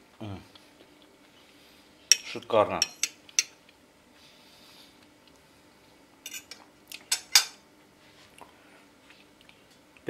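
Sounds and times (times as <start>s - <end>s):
cutlery clinking on ceramic plate: 6.3s - 7.6s.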